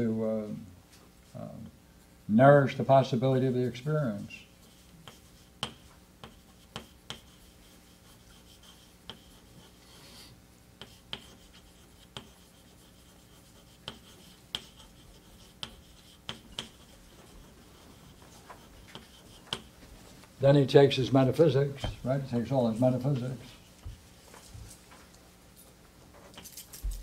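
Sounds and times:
faint steady hum: 0.0 - 27.0
light rubbing of paper: 4.6 - 20.3.

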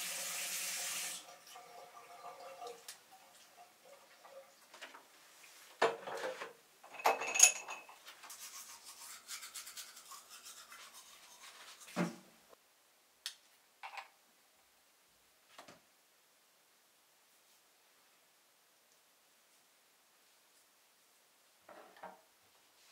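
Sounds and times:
scrubbing and rubbing: 8.1 - 12.0.

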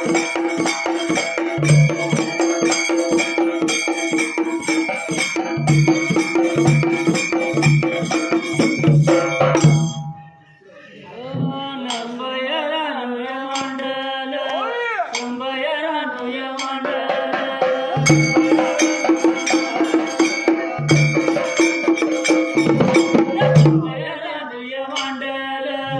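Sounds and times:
dhol drum beating: 0.0 - 10.3, 16.3 - 24.2
hand cymbals ringing: 0.0 - 10.5, 16.5 - 23.9
man singing: 10.8 - 21.5, 23.0 - 25.9.

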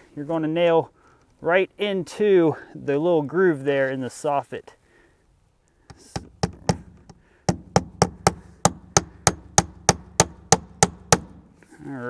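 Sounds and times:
hammer striking nail: 5.9 - 11.5.

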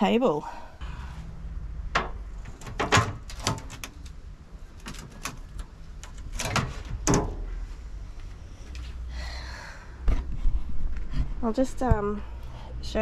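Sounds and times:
metal clunks and clicks: 4.8 - 7.5.

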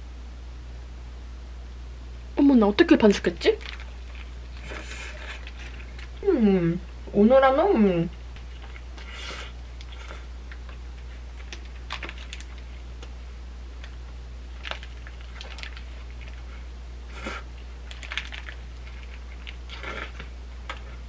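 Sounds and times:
steady low hum: 0.0 - 21.0
paper wrapper rustling: 3.6 - 6.1, 11.4 - 12.7, 14.5 - 16.4, 17.9 - 19.6
person chewing food: 3.6 - 6.2, 8.4 - 13.2, 13.8 - 21.0.

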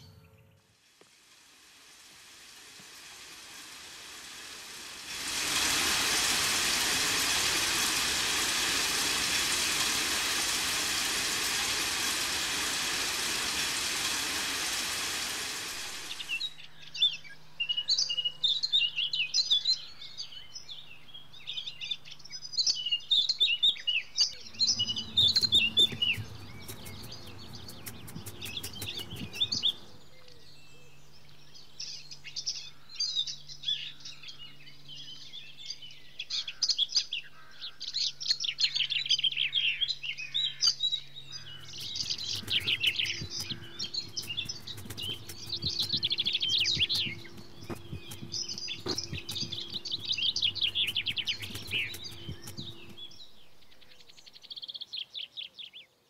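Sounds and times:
steady hiss: 0.8 - 16.7, 24.5 - 30.0, 41.3 - 53.6
birds chirping: 4.0 - 55.8.

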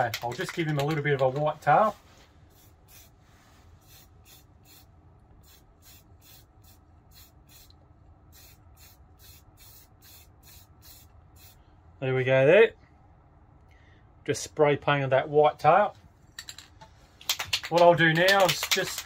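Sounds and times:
aerosol spray can hissing: 2.5 - 3.2, 3.8 - 7.7, 8.3 - 11.6.

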